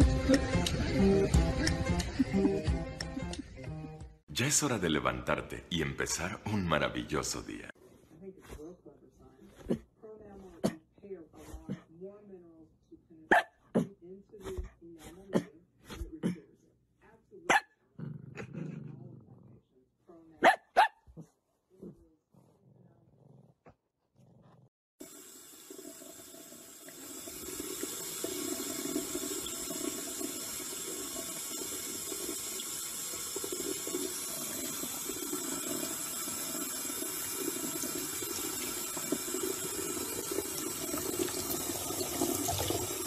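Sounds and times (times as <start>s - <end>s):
water running from a tap: 25.0s - 43.0s
water splashing into a mug: 25.6s - 43.0s.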